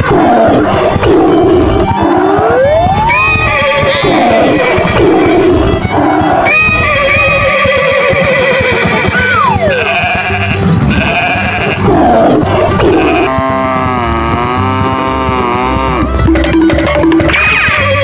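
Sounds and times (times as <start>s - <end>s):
background music: 0.0s - 18.0s
fast repeating high musical figure: 0.6s - 8.1s, 8.8s - 13.3s
wavering bleat-like animal call: 3.1s - 5.0s, 9.0s - 16.3s, 17.2s - 18.0s.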